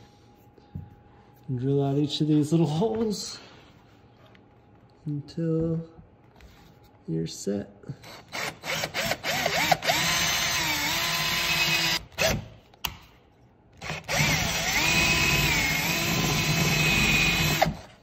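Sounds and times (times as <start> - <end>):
power drill boring into plastic: 8.3 - 12.4, 13.8 - 17.9.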